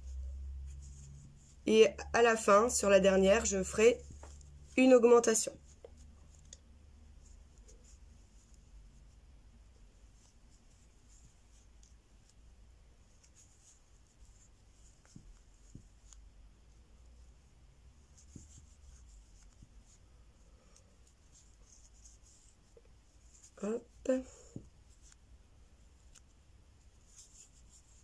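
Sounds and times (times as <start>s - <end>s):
crochet hook rubbing and clicking: 3.1s - 9.1s, 10.0s - 12.5s, 13.1s - 16.4s, 18.0s - 20.0s, 20.7s - 28.0s.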